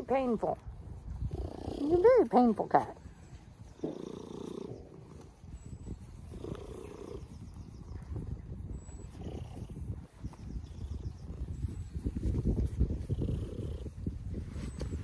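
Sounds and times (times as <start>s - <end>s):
cat purring: 1.2s - 3.0s, 3.6s - 8.1s, 8.7s - 11.6s, 12.7s - 14.0s.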